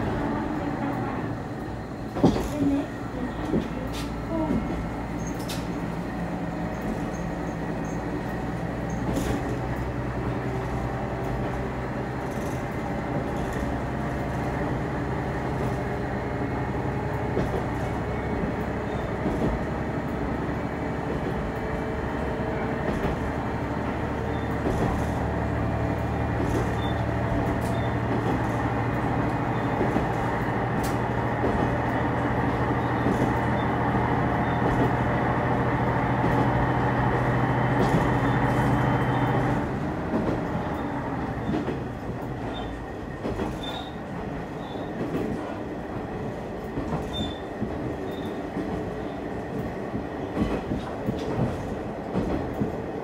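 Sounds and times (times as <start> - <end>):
wheels rumbling on rails: 0.0 - 53.0.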